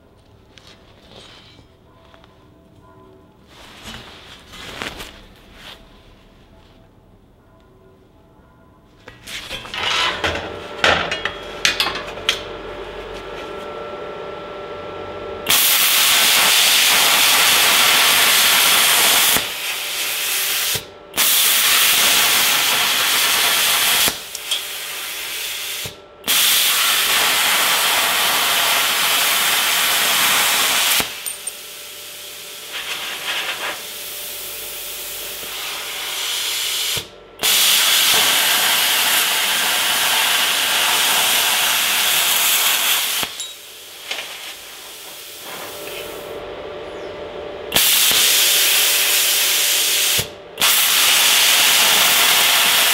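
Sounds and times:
quiet hum: 0.0 - 15.4
plasma cutter arc hissing: 15.5 - 46.2, 47.7 - 52.9.

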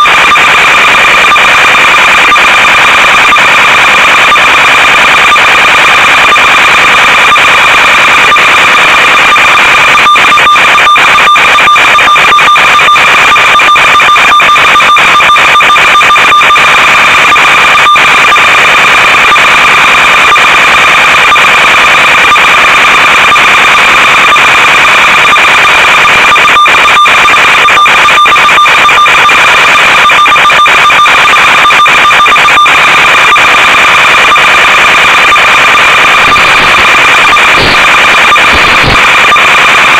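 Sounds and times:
radio signal crackles: 0.0 - 39.9
steady electronic buzz: 31.8 - 39.9.

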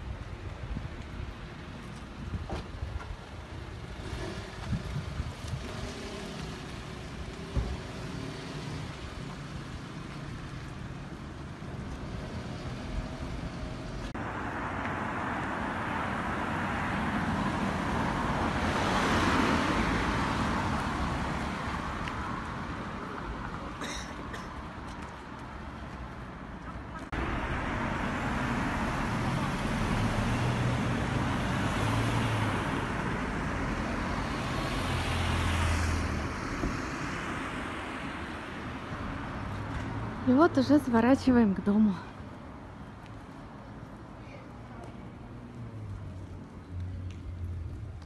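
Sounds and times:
low traffic rumble: 0.0 - 48.0
car driving past: 27.2 - 38.2.

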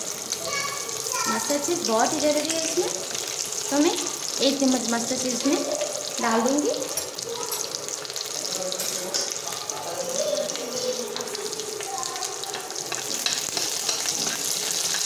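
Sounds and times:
hot oil sizzling and crackling: 0.0 - 15.0
spatula stirring pan: 10.3 - 15.0.

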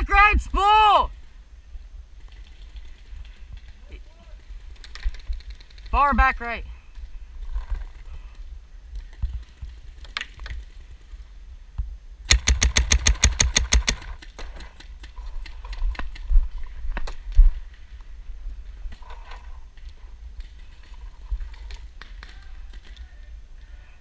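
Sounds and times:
paintball marker shots: 12.3 - 14.7.

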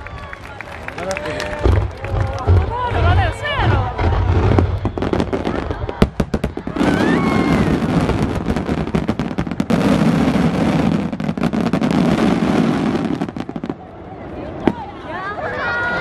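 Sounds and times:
fireworks bangs and crackles: 0.0 - 15.2.

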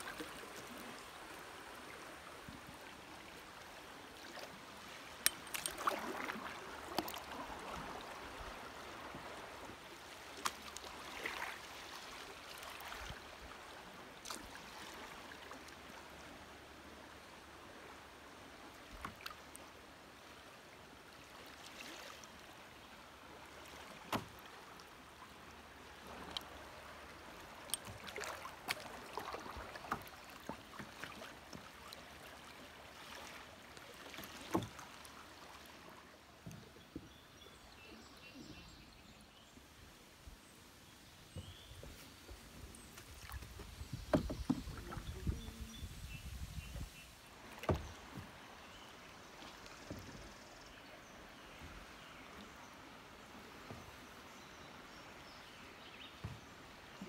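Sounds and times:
paddle strokes splashing: 0.0 - 16.0, 23.2 - 37.2, 41.2 - 50.5
water washing along hull: 0.0 - 16.4, 23.3 - 37.1, 41.3 - 48.7.

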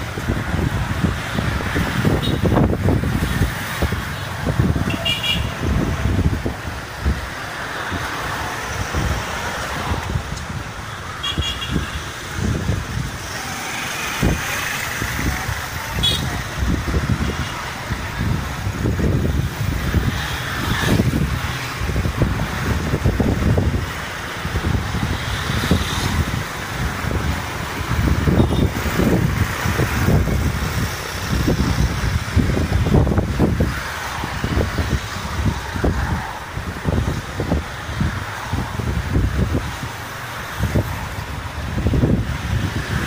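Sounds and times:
motorbike engine and road noise: 0.0 - 43.0.

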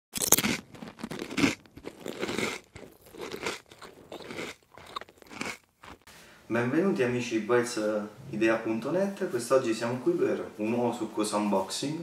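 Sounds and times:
crunchy chewing: 0.1 - 6.1.

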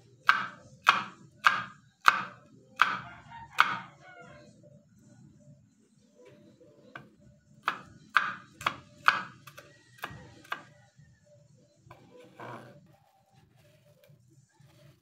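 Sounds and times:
knife chopping on wooden board: 0.2 - 3.0, 3.6 - 3.8, 7.6 - 10.7.

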